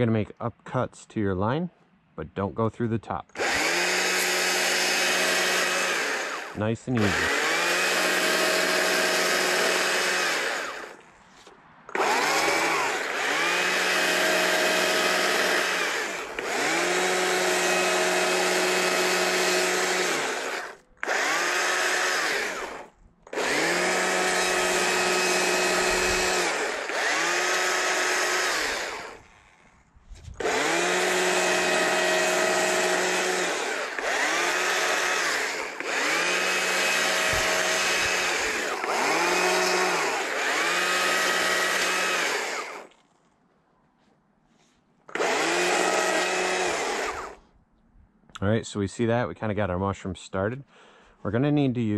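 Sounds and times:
chainsaw revving and cutting: 3.4 - 11.0, 11.9 - 29.7, 30.4 - 43.0, 45.1 - 47.4.

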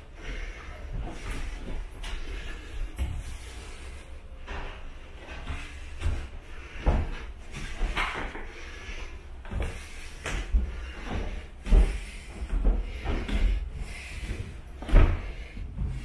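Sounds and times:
footsteps on wooden stairs: 0.2 - 16.0.

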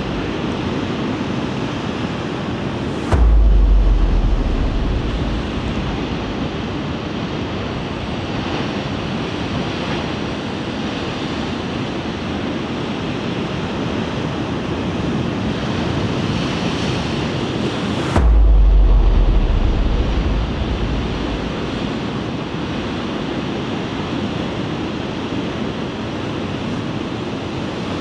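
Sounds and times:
storm surf crashing on sea wall: 0.0 - 12.8, 15.5 - 24.0.

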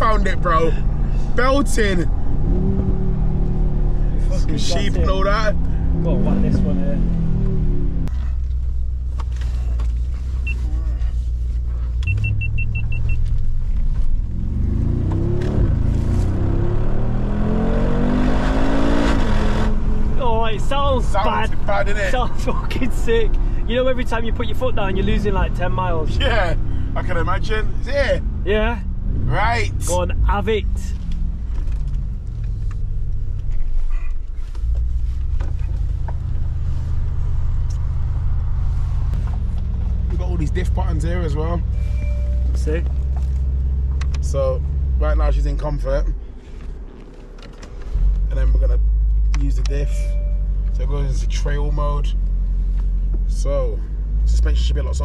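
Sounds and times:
car engine accelerating hard: 0.0 - 10.5, 11.6 - 50.0
short high beeps: 12.0 - 13.2, 41.7 - 42.5, 49.8 - 50.5.

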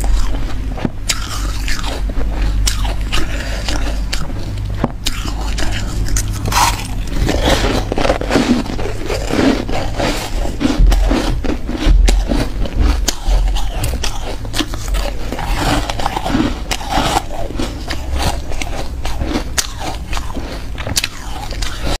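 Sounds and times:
person crunching ice: 0.0 - 22.0
heavy low thuds: 4.1 - 17.4.

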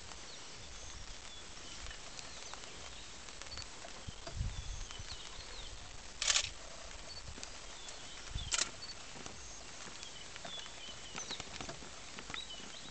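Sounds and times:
faint ticks: 1.0 - 5.6, 6.2 - 12.8.

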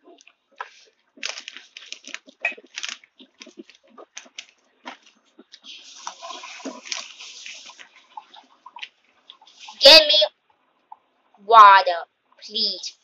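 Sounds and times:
crunchy chewing: 0.1 - 9.8
steady hiss: 4.9 - 10.1.

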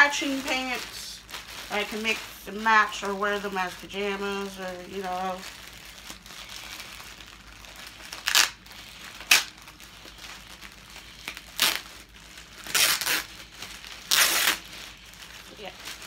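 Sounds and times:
plastic bag crinkling and tearing: 0.0 - 16.0.

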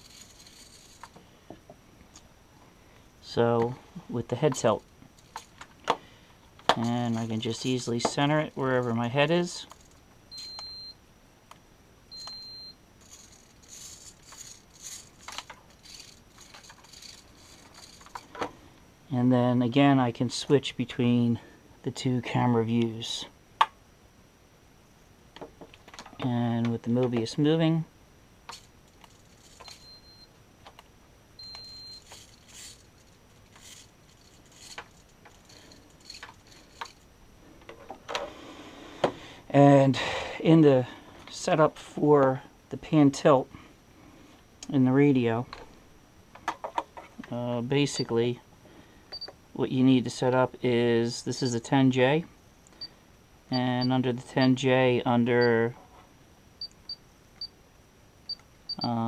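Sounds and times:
faint handling clicks and rustles: 0.0 - 18.9, 28.4 - 39.2
servo ticks and whirs: 9.7 - 10.9, 11.5 - 18.3, 28.5 - 37.0
long electronic beeps: 10.3 - 11.0, 12.1 - 15.1, 29.6 - 30.4, 31.4 - 32.7
short high beeps: 10.3 - 11.0, 12.1 - 12.8, 31.4 - 32.1.

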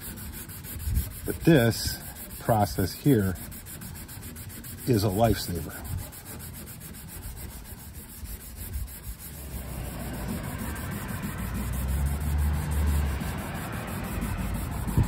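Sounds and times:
vehicle engine rumble: 7.2 - 15.0.

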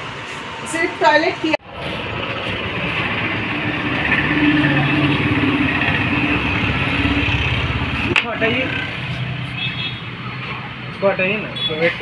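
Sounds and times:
street traffic: 0.0 - 12.0
vehicle engine running: 1.6 - 9.6.

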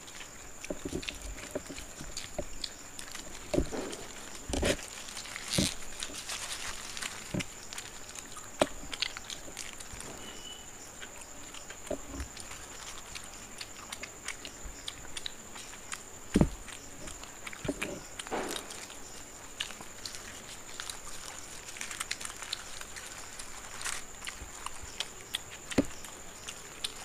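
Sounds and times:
people chewing: 0.0 - 27.0
paper wrappers rustling: 0.8 - 10.6, 20.0 - 24.9
loud knock: 18.3 - 18.8.

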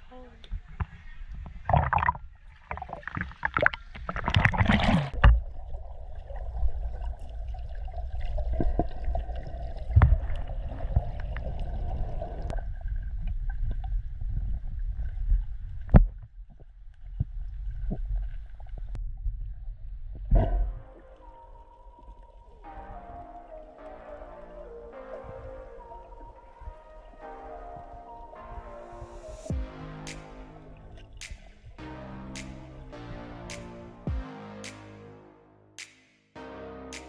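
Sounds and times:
water sloshing and splashing: 0.4 - 23.8.

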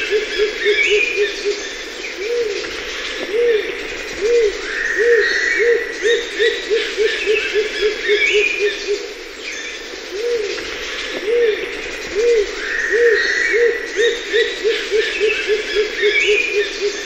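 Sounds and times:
dove hooting and cooing: 0.0 - 9.2, 10.1 - 17.0
birds whistling and chirping: 0.0 - 17.0.

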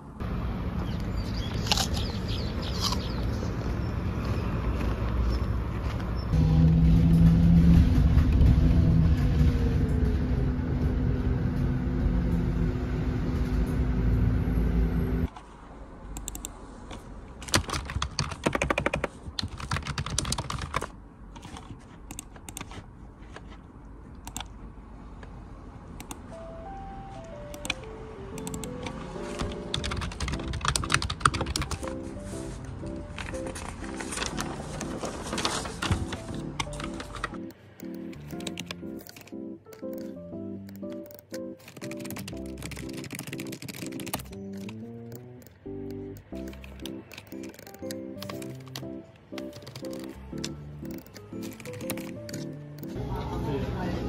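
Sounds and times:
vehicle engine and road rumble: 0.0 - 54.0
computer keyboard typing: 16.2 - 16.5, 17.4 - 22.8, 24.2 - 24.5, 27.2 - 32.0, 32.8 - 53.0.

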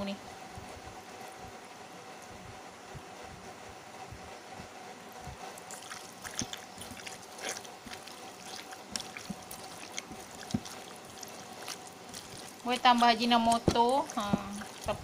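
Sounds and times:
hand squelching meat in marinade: 5.6 - 15.0.

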